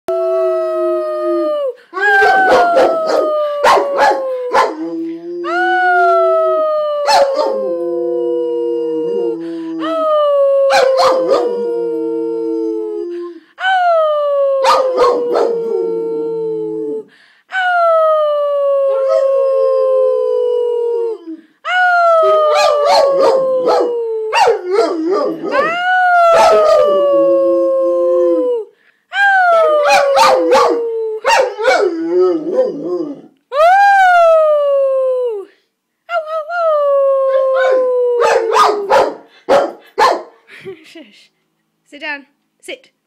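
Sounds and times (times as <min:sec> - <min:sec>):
dog howling: 0:00.1 - 0:13.1, 0:14.0 - 0:17.0, 0:22.0 - 0:28.7, 0:29.4 - 0:35.4, 0:36.8 - 0:39.2.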